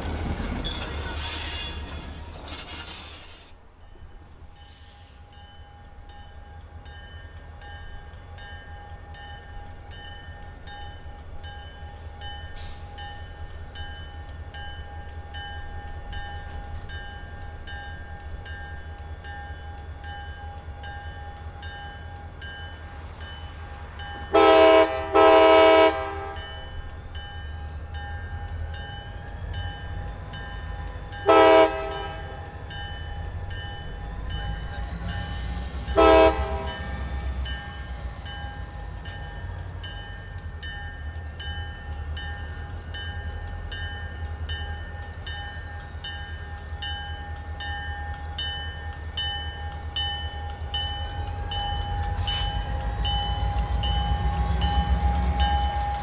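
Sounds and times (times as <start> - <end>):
locomotive horn blasts: 24.3 - 26.4, 31.2 - 32.3, 36.0 - 36.8
crossing signal bell ringing: 26.3 - 56.0.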